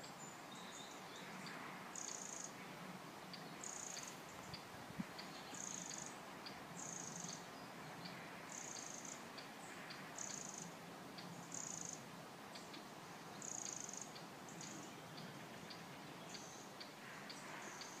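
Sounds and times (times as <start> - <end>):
soft hiss: 0.0 - 18.0
insect chirping: 2.0 - 2.5, 3.3 - 7.4, 8.5 - 9.3, 10.2 - 14.8.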